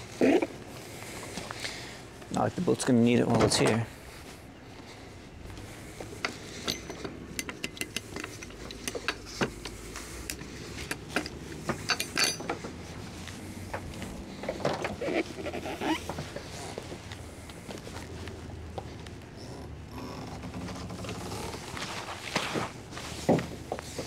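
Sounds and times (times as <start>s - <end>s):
boat hardware clinking: 6.1s - 12.9s
short creak: 14.4s - 16.8s, 19.3s - 22.8s.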